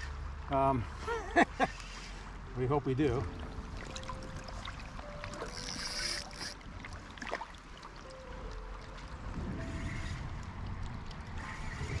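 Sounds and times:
river water running: 0:00.0 - 0:12.0
wind rumble on microphone: 0:08.1 - 0:12.0.

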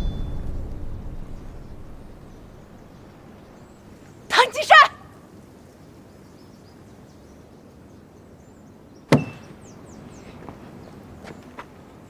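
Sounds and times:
short ringing tone: 0:00.0 - 0:00.7
sharp knock: 0:09.1 - 0:09.5.

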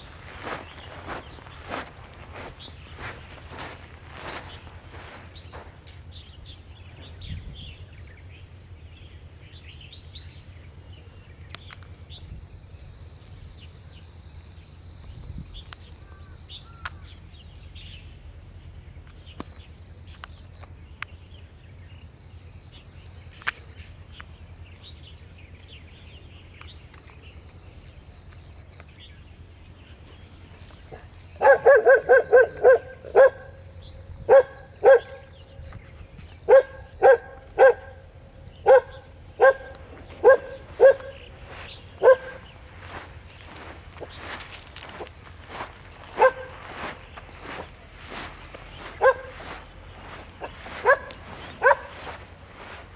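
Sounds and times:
faint chirping: 0:00.0 - 0:52.9
puppy barking: 0:30.9 - 0:33.6, 0:34.3 - 0:35.3, 0:36.5 - 0:38.0, 0:38.6 - 0:41.2, 0:42.0 - 0:42.4, 0:46.2 - 0:46.6, 0:49.0 - 0:49.4, 0:50.4 - 0:52.1.

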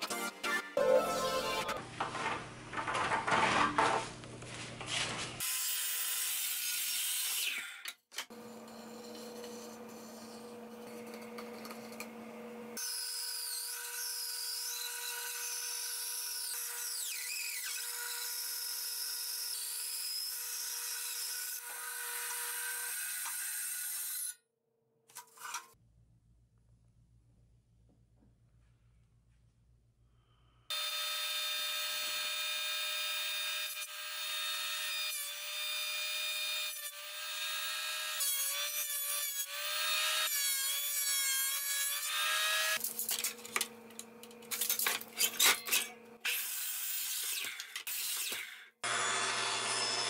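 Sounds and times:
band saw cutting wood: 0:05.4 - 0:24.3, 0:30.7 - 0:43.7, 0:44.4 - 0:50.0.

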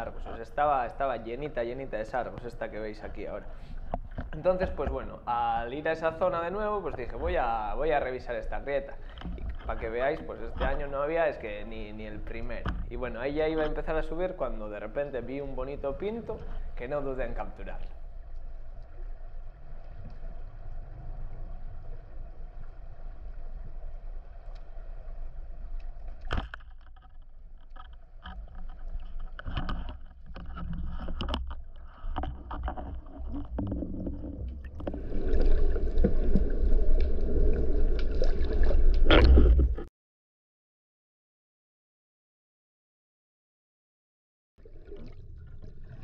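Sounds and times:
water churning and bubbling: 0:00.0 - 0:39.9, 0:44.6 - 0:46.0
sharp underwater clicks and knocks: 0:02.1 - 0:05.1, 0:08.9 - 0:11.2, 0:12.2 - 0:14.1, 0:25.7 - 0:36.4, 0:37.9 - 0:39.9
underwater low rumble: 0:15.5 - 0:26.3, 0:27.2 - 0:39.9.

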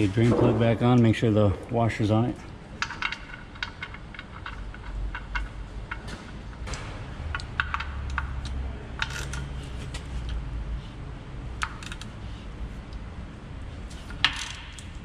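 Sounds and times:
low steady hum: 0:00.0 - 0:15.0
ratchet clicking: 0:11.6 - 0:12.1.

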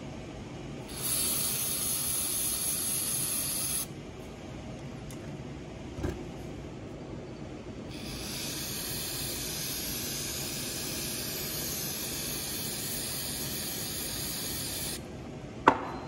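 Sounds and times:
aerosol can spraying: 0:00.9 - 0:03.9, 0:07.9 - 0:15.0.

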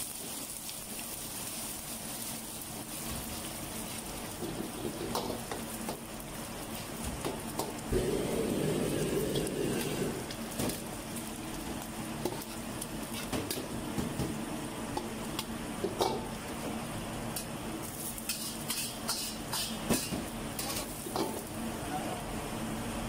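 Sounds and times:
eggs sizzling in hot oil: 0:00.0 - 0:21.8
metal ladle scraping a wok: 0:18.2 - 0:19.8.

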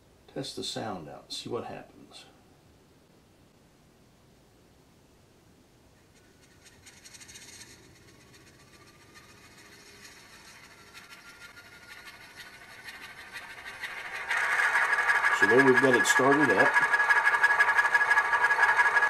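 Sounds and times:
diesel engine start-up from small speaker: 0:13.9 - 0:19.0.

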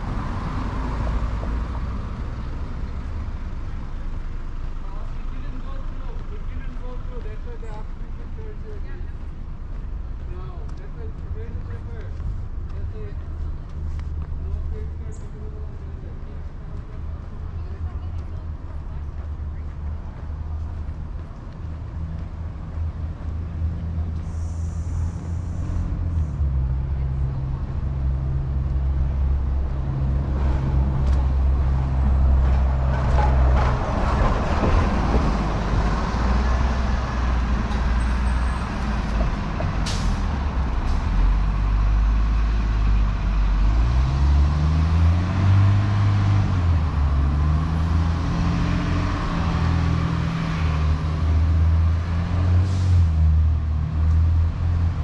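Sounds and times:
city street traffic: 0:00.0 - 0:55.0
heavy vehicle engine rumbling: 0:00.0 - 0:55.0.

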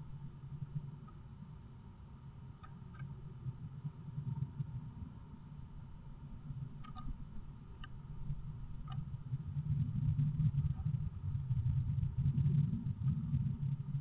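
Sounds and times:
faint high ticks: 0:00.6 - 0:01.3, 0:02.6 - 0:03.5, 0:06.8 - 0:08.0, 0:08.8 - 0:09.1.

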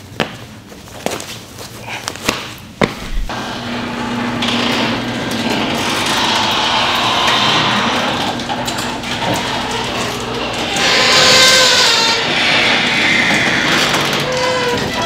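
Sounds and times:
door panels rolling along tracks: 0:03.3 - 0:15.0
garage door opener motor: 0:03.3 - 0:15.0.

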